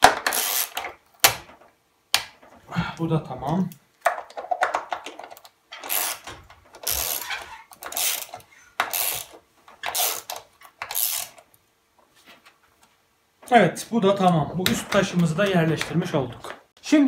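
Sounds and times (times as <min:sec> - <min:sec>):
ratchet wrench clicking: 0:00.3 - 0:00.8, 0:05.8 - 0:07.3, 0:07.9 - 0:08.3, 0:08.9 - 0:09.3, 0:09.9 - 0:11.4.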